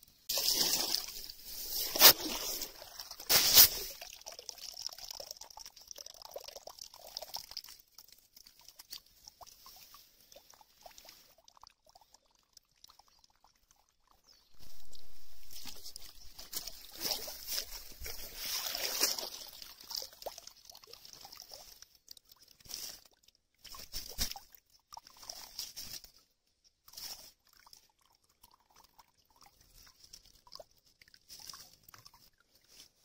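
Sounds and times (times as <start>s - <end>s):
wet leaves crackling and rustling: 0.3s - 4.9s, 14.6s - 27.6s
net splashing in pond water: 0.3s - 13.9s, 14.6s - 33.0s.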